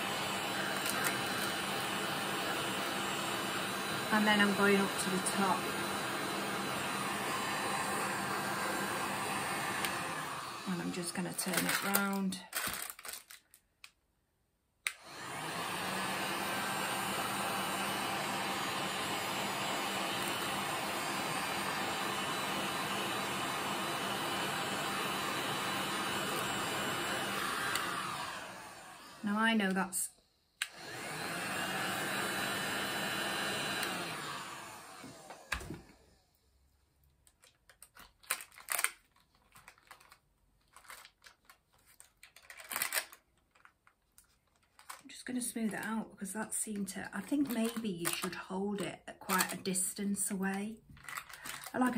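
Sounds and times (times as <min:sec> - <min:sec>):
heat gun fan blowing: 0:00.0 - 0:12.3, 0:14.9 - 0:29.9, 0:30.6 - 0:36.1
paper crinkling: 0:11.5 - 0:13.9, 0:37.2 - 0:45.1, 0:50.9 - 0:51.7.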